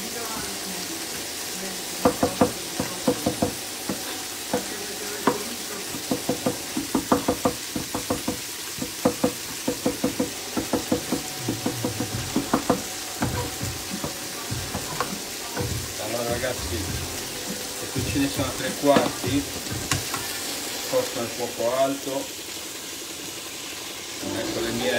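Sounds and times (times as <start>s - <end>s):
pan sizzling: 0.0s - 24.9s
knife chopping on wooden board: 2.0s - 15.9s, 18.9s - 20.3s.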